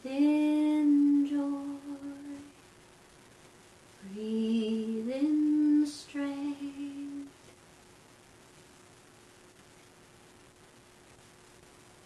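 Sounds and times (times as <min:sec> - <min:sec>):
woman singing wordless held notes: 0:00.0 - 0:02.6, 0:04.0 - 0:07.4.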